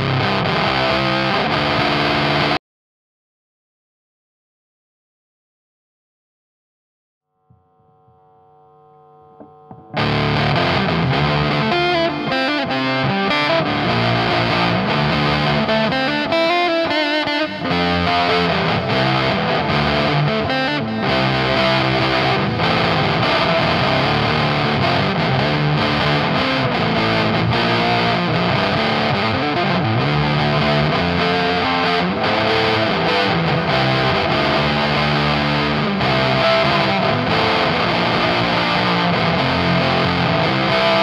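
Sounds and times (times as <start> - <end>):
fuzzed electric guitar riffing: 0.0 - 2.6, 7.5 - 41.0.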